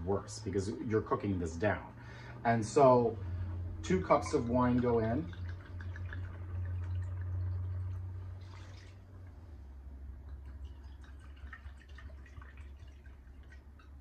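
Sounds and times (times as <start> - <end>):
low hum: 0.0 - 14.0
liquid dripping: 4.2 - 14.0
wine pouring and splashing: 4.3 - 9.4, 10.1 - 14.0.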